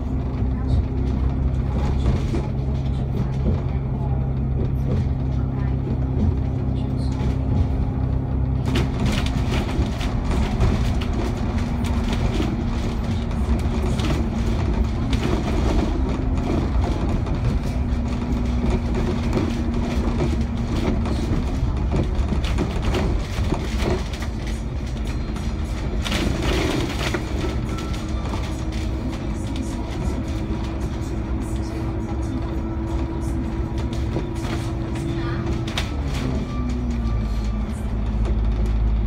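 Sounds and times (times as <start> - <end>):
body and fittings rattling: 0.0 - 39.0
bus drivetrain hum: 0.0 - 39.0
road rumble: 0.0 - 39.0.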